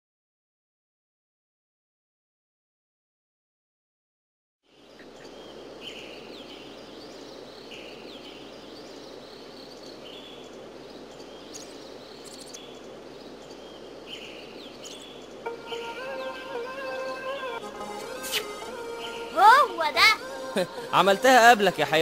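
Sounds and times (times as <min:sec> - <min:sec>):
steady background hiss: 0:04.6 - 0:22.0
music: 0:15.5 - 0:22.0
short bird chirps: 0:18.2 - 0:19.3.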